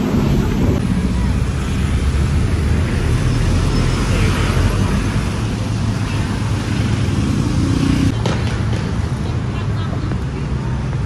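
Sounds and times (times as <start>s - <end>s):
cars and motorbikes passing: 0.0s - 11.0s
city traffic rumble: 0.0s - 11.0s.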